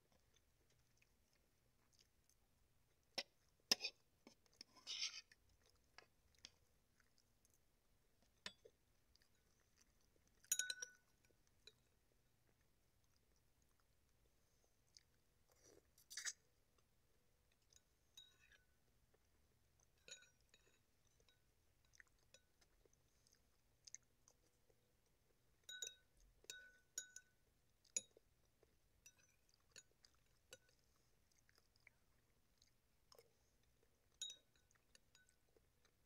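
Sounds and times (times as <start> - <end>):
quiet chewing: 0.0 - 36.0
spoon clinking on ceramic bowl: 10.5 - 11.8, 20.0 - 21.4, 25.7 - 27.4, 34.2 - 35.4.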